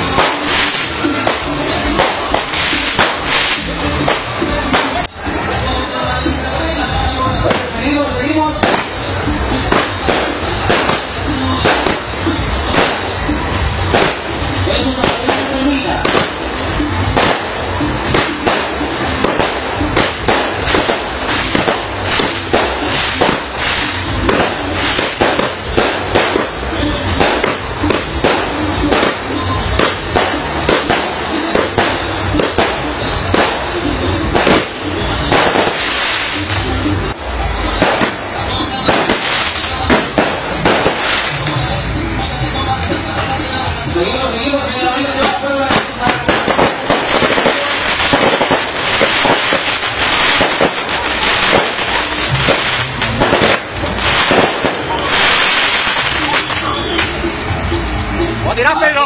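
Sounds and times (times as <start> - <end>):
fireworks exploding: 0.0 - 59.0
music playing: 0.0 - 59.0.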